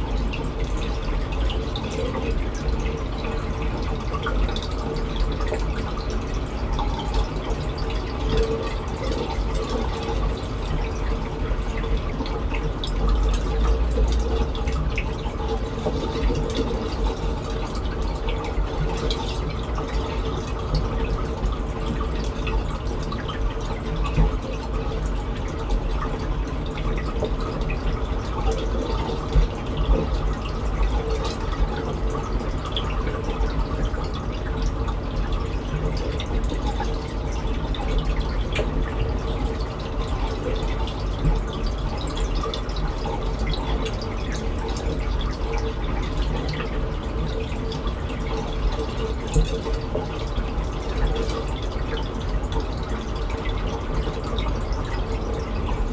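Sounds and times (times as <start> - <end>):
low steady hum: 0.0 - 55.9
water trickling and dripping: 0.0 - 55.9.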